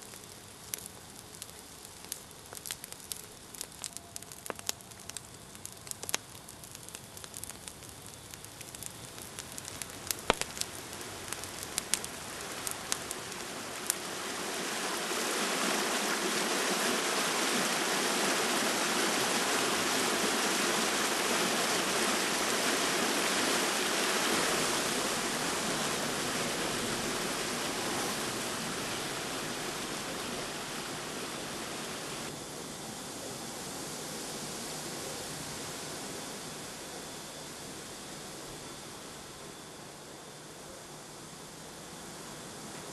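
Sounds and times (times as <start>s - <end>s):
sharp crackles: 0.0s - 32.3s.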